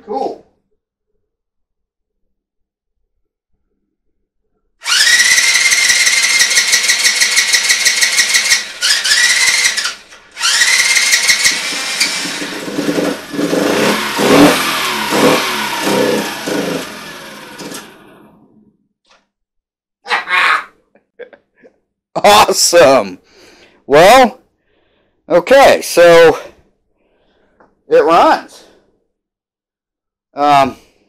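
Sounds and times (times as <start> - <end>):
small engine starter cranking: 4.8 - 18.3
small engine revving: 4.8 - 18.6.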